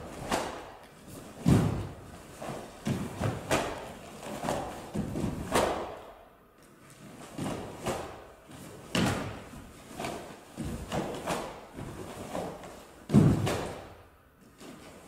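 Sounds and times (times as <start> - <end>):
bare feet thudding on wooden floor: 1.4 - 5.9, 8.9 - 14.0.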